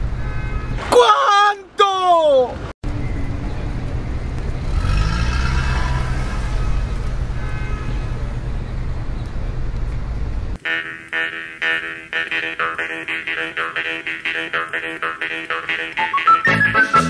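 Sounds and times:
car engine and road noise: 0:00.0 - 0:00.9, 0:02.3 - 0:10.6
plucked instrument music with beat: 0:10.7 - 0:17.0.

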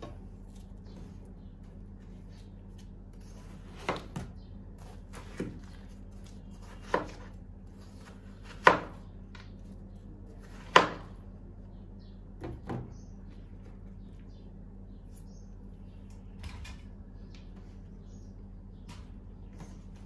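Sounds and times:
knife slicing watermelon: 0:02.7 - 0:09.0.

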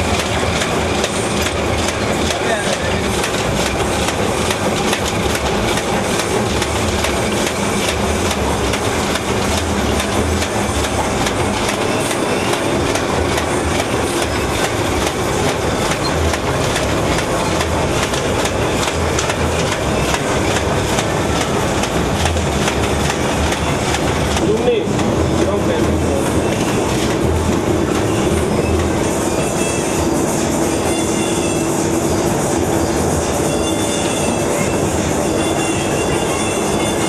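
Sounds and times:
wrapping machine clattering: 0:00.0 - 0:29.0.

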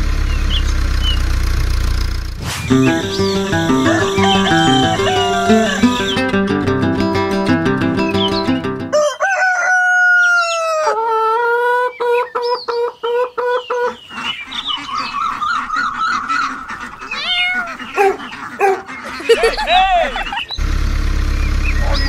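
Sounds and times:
hens clucking: 0:02.6 - 0:06.6, 0:08.9 - 0:20.6
music: 0:02.7 - 0:08.9
rooster crowing: 0:03.0 - 0:06.3, 0:08.9 - 0:11.3.

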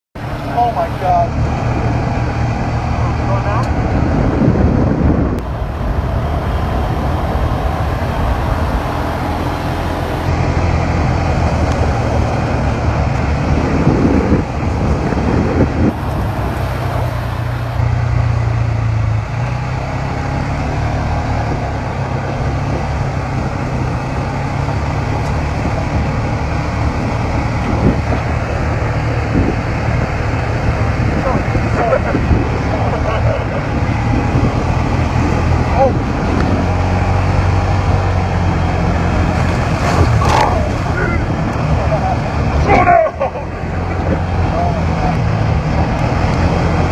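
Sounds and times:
atv engine running: 0:00.2 - 0:46.9.

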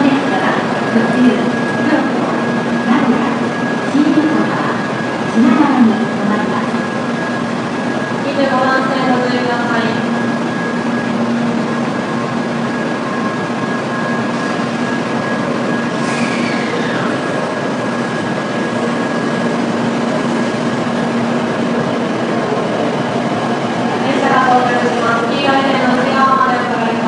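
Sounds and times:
train wheel and air rush: 0:10.0 - 0:25.2
falling whistle: 0:15.9 - 0:17.3.

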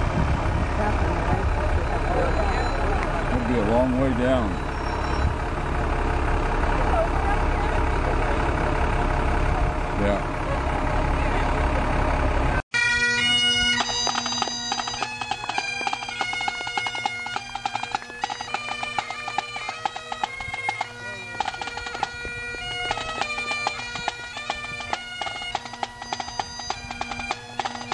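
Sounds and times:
bagpipes playing over drones: 0:01.4 - 0:09.2, 0:12.8 - 0:27.9
drum beat: 0:13.8 - 0:27.9.

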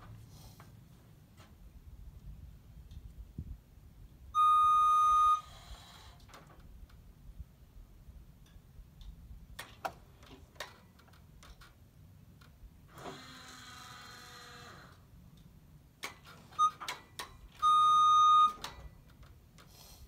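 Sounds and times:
loud electronic beep: 0:04.4 - 0:05.5
scissor lift motor whirring: 0:04.4 - 0:06.4, 0:12.9 - 0:15.1.

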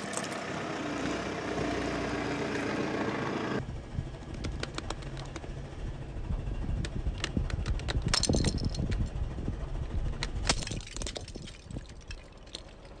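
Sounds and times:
car low rumble: 0:00.0 - 0:13.0
plastic pieces clattering on asphalt: 0:10.5 - 0:13.0.

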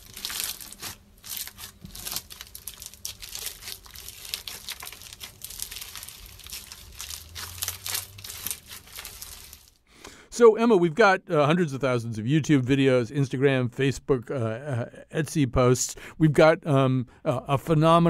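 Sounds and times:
slime sticky clicks and crackles: 0:00.0 - 0:09.7.

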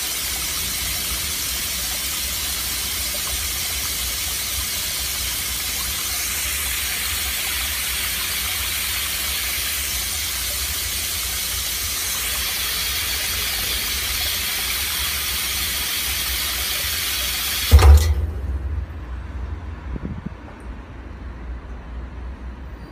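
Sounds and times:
water jetting into a tank: 0:00.0 - 0:19.3
loud thump: 0:17.7 - 0:19.6.

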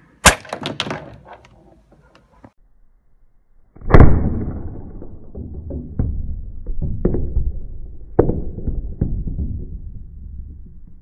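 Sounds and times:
shot hitting plastic tubes: 0:00.2 - 0:01.4, 0:03.8 - 0:09.6.

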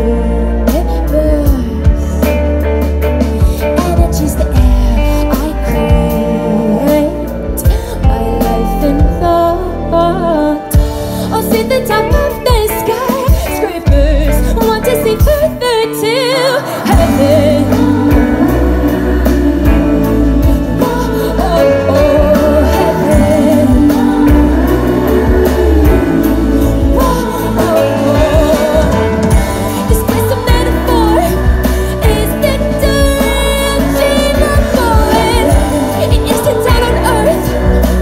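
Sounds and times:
woman singing: 0:00.0 - 0:02.6, 0:03.4 - 0:38.0
live pop band: 0:00.0 - 0:38.0.

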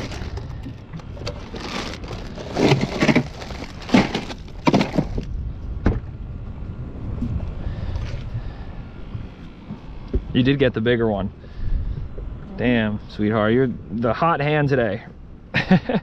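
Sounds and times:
ice cubes crunching and clattering: 0:00.0 - 0:00.5, 0:01.1 - 0:05.3.

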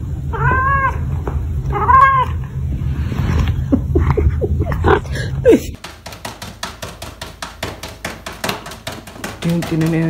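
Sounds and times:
cat meowing: 0:00.3 - 0:01.1, 0:01.7 - 0:02.5.

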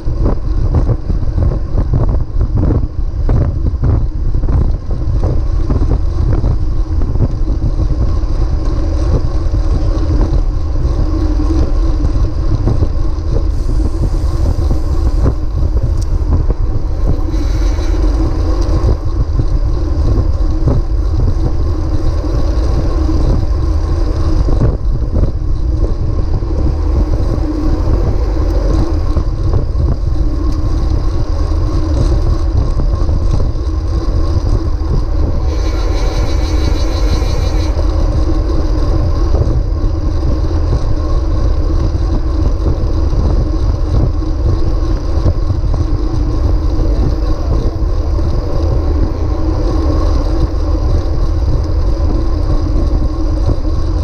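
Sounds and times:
tyre and road noise: 0:00.0 - 0:54.0
wind buffeting microphone: 0:00.0 - 0:54.0
high buzz: 0:35.0 - 0:39.0.

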